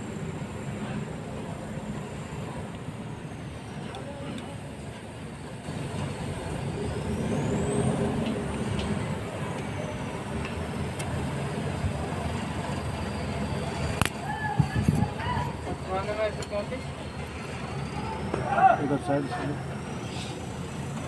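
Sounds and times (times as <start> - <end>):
vehicle engine rumbling: 0.0 - 21.0
sharp click: 14.0 - 14.2.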